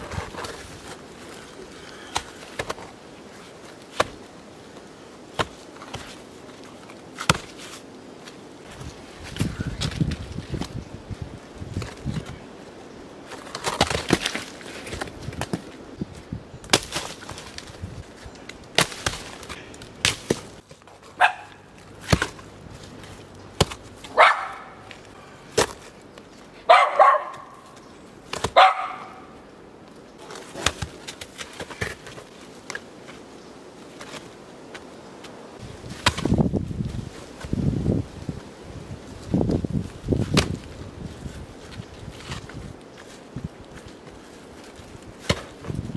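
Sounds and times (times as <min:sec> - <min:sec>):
stones knocking and scraping: 0:00.0 - 0:10.8, 0:11.6 - 0:12.4, 0:13.2 - 0:15.8, 0:16.6 - 0:26.3, 0:28.2 - 0:28.7, 0:30.2 - 0:33.2, 0:35.8 - 0:37.6, 0:39.3 - 0:45.9
dog barking: 0:21.2 - 0:21.6, 0:24.2 - 0:24.8, 0:26.7 - 0:27.6, 0:28.6 - 0:29.3.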